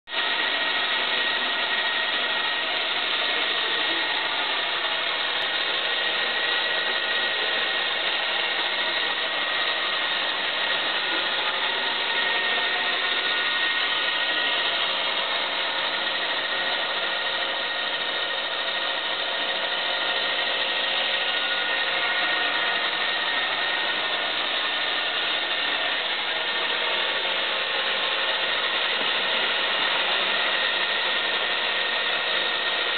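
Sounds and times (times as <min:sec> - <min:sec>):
toy helicopter motor whine: 0:00.2 - 0:32.9.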